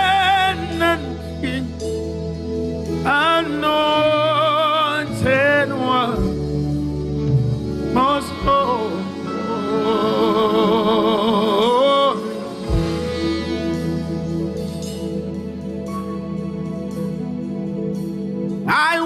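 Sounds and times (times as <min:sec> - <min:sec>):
person singing with vibrato: 0:00.0 - 0:02.3, 0:02.9 - 0:15.4
sustained instrumental backing: 0:00.0 - 0:19.0.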